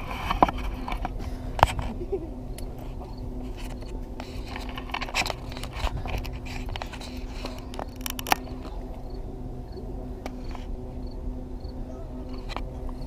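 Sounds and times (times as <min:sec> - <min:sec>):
microphone handling clicks and scrapes: 0:00.0 - 0:02.0, 0:02.7 - 0:08.8
faint steady hum: 0:00.0 - 0:13.0.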